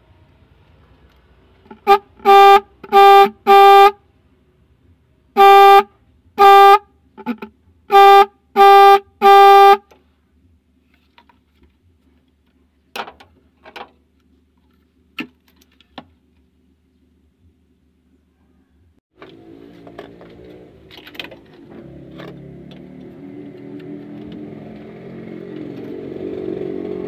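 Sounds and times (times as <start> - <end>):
car horn honking: 1.7 - 4.0, 5.3 - 9.9.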